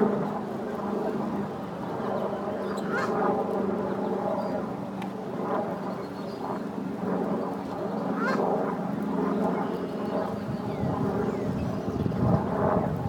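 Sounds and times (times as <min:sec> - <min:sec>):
geese and ducks calling: 0:02.8 - 0:03.2.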